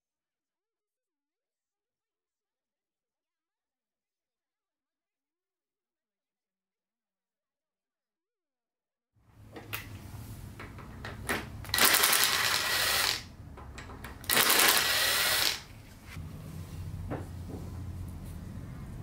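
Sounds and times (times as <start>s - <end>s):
power driver spinning: 9.7s - 16.2s.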